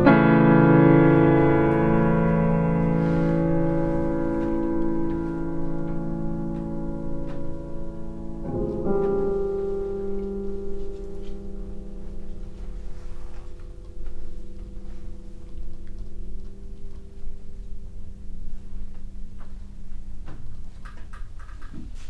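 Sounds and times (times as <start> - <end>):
piano chord ringing: 0.0 - 19.9
faint low rumble: 0.7 - 20.8.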